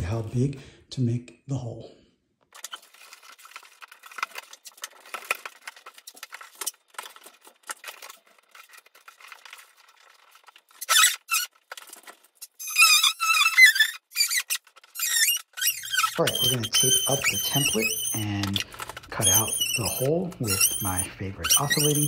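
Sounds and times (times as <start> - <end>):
cardboard crinkling: 2.5 - 22.0
tape squealing off roll: 7.7 - 22.0.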